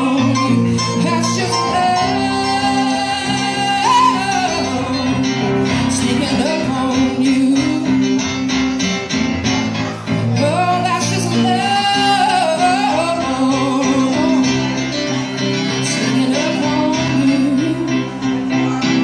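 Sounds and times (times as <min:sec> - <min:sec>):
woman singing: 0:00.0 - 0:08.1, 0:10.4 - 0:14.8, 0:15.8 - 0:18.2
electric guitar: 0:00.0 - 0:19.0
keyboard: 0:00.0 - 0:19.0.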